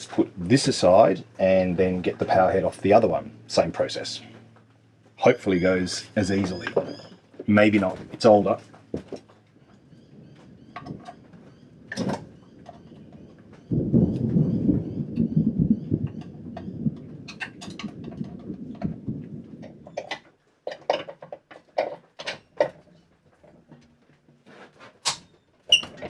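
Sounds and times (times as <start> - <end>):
thunder rumble: 9.9 - 20.0.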